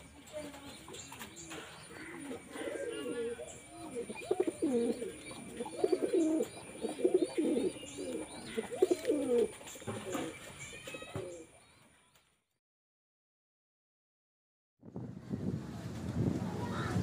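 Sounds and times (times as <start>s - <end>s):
pigeons cooing: 0.3s - 11.5s.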